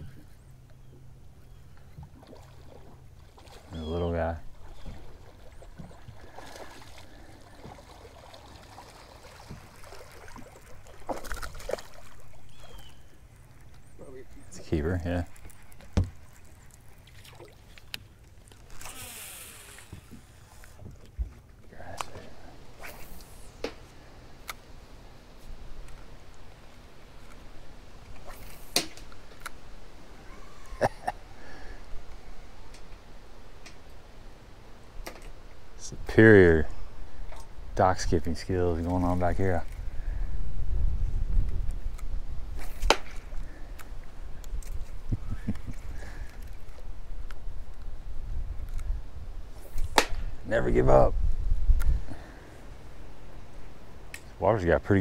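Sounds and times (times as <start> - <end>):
water lapping around boat: 0.0 - 31.9, 41.4 - 50.0
short hiss: 18.8 - 20.8.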